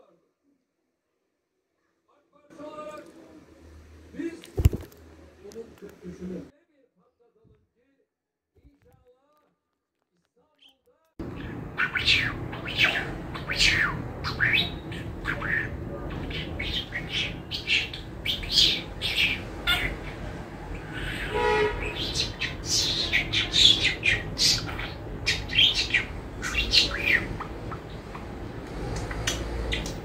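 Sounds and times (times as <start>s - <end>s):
budgerigar chirping: 11.2s - 20.2s, 20.8s - 30.0s.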